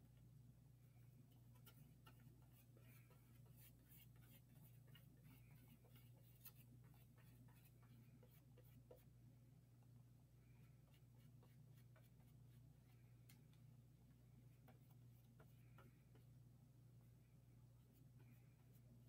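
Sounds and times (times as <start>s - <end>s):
paintbrush scratching on paper: 1.3s - 9.2s, 10.6s - 13.1s, 14.6s - 16.4s.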